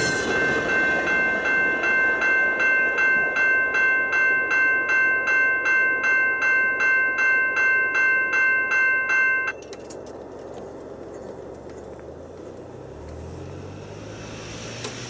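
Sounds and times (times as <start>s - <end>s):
railroad crossing bell ringing: 0.0s - 11.3s.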